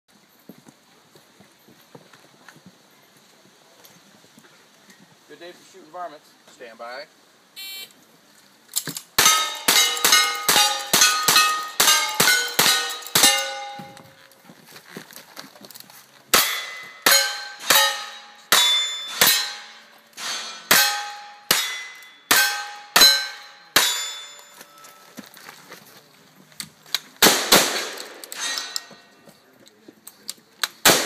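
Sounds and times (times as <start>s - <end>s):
bullets clanging on steel target: 8.8s - 14.3s, 16.3s - 25.2s, 27.8s - 29.2s
gunshots: 27.2s - 28.6s.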